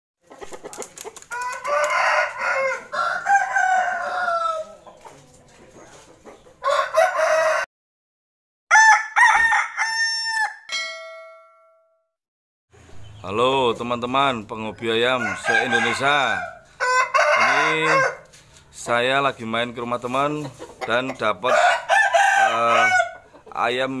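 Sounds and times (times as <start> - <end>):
rooster wings flapping: 0.3 - 2.4
rooster crowing: 1.3 - 4.8, 6.6 - 7.7, 8.7 - 10.7, 15.1 - 18.3, 21.5 - 23.2
ringing tones: 10.7 - 12.1.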